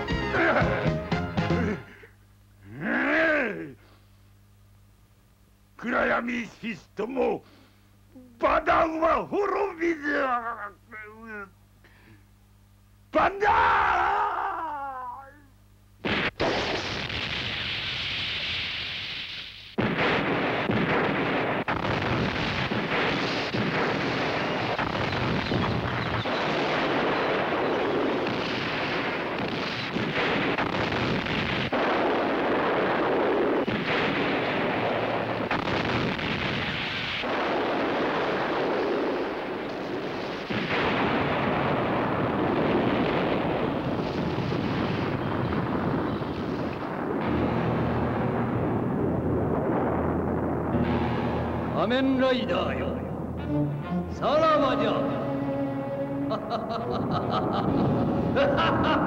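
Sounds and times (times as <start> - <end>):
explosions: 16.0 - 53.7, 56.2 - 59.0.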